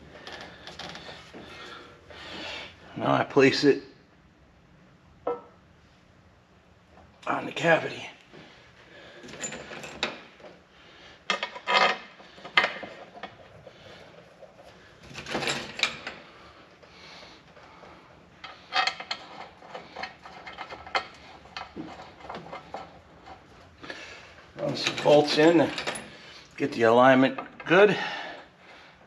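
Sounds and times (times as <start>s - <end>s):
metallic clinks and scrapes: 11.3s - 16.4s, 18.4s - 23.7s, 24.6s - 26.5s.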